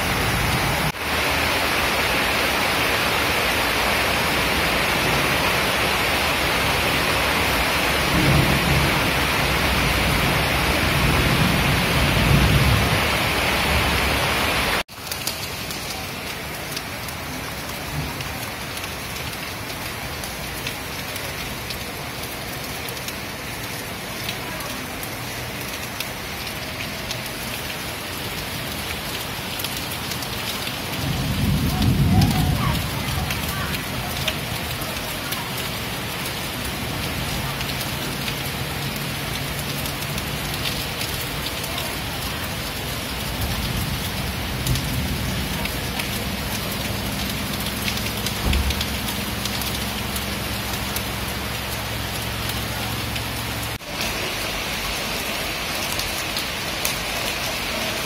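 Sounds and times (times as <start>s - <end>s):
rain falling steadily: 0.0s - 58.0s
low rolls of thunder: 8.0s - 13.2s, 30.9s - 34.6s.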